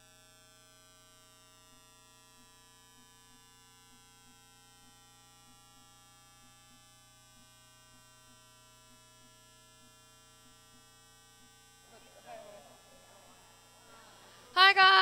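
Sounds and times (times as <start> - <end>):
faint electrical buzz: 0.0 - 15.0
soft faint ticks: 1.7 - 11.6.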